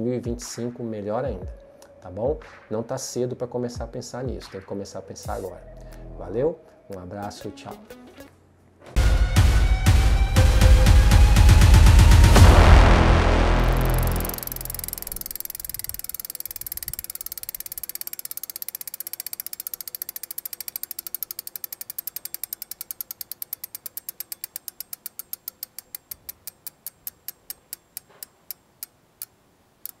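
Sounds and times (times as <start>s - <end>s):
ratchet clicking: 13.8s - 30.0s.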